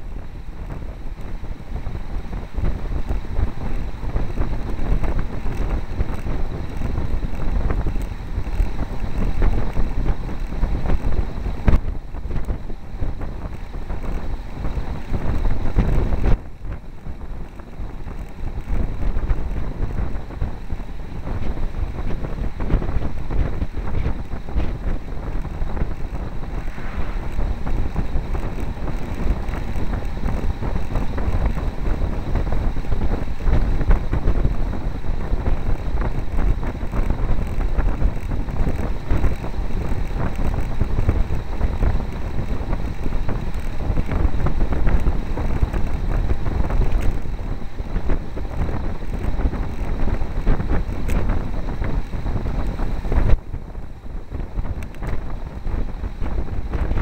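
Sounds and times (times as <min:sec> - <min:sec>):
wind buffeting microphone: 0:00.0 - 0:57.0.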